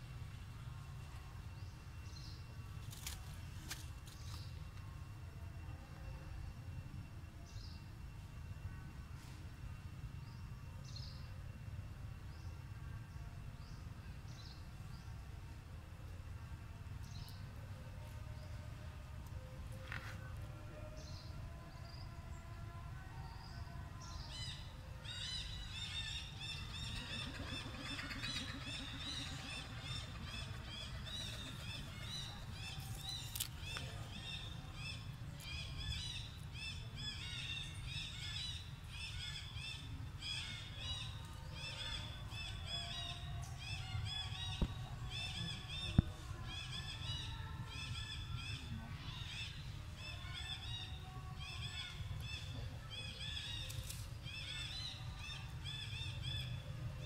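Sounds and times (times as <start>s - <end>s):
birds chirping: 23.4s - 56.6s.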